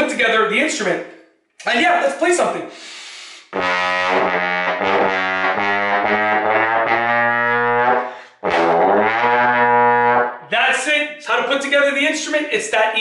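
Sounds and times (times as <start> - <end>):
trombone playing low notes: 3.5 - 10.4.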